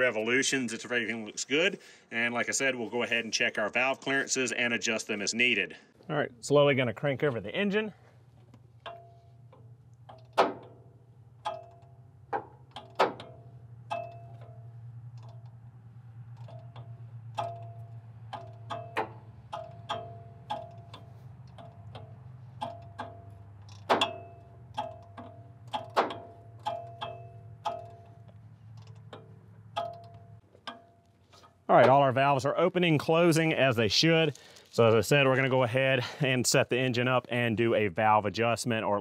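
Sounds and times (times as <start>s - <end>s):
low steady hum: 0.0s - 38.9s
hand ratchet clicking: 16.4s - 31.5s.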